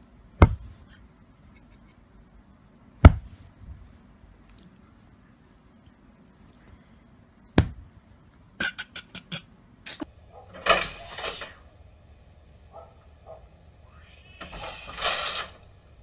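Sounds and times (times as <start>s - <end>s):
mail slot flap rattling: 10.5s - 11.6s, 14.4s - 15.6s.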